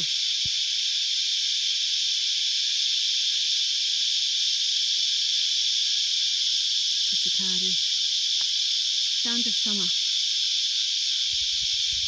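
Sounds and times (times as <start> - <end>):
cicadas droning: 0.0 - 12.0.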